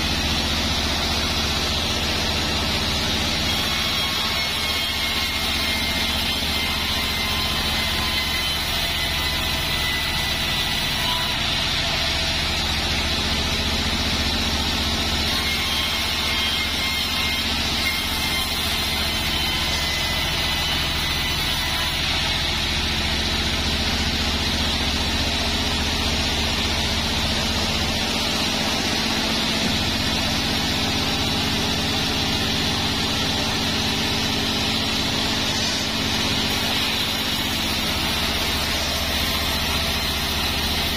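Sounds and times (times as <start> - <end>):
band saw cutting wood: 0.0 - 40.9.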